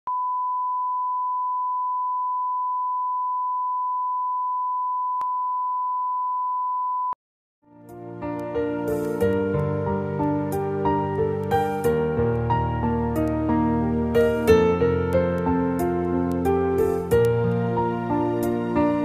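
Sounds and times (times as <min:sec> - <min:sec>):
soft piano music: 0:07.7 - 0:19.0.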